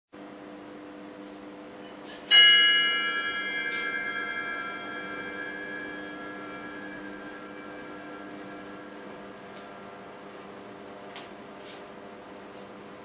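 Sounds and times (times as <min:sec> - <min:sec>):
steady low hum: 0:00.2 - 0:13.0
bell ringing: 0:01.8 - 0:11.0.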